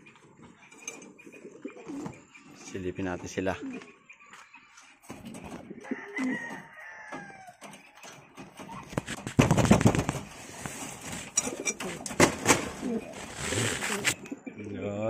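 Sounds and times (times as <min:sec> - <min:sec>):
rooster crowing: 0:05.8 - 0:07.6
loud rustling: 0:07.6 - 0:14.2.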